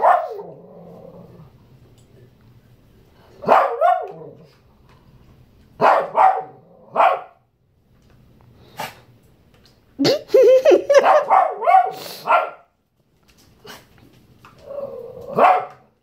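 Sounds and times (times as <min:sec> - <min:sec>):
small dog barking: 0:00.0 - 0:00.6, 0:03.4 - 0:04.5, 0:05.8 - 0:07.4, 0:11.0 - 0:12.7, 0:15.3 - 0:15.9.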